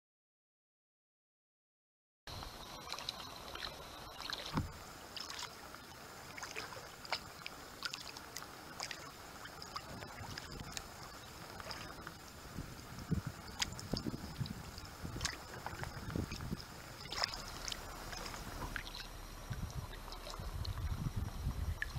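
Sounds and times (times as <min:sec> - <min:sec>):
paddle splashing in water: 0:02.8 - 0:21.0
water dripping: 0:02.8 - 0:21.0
dull thump: 0:04.5 - 0:04.8.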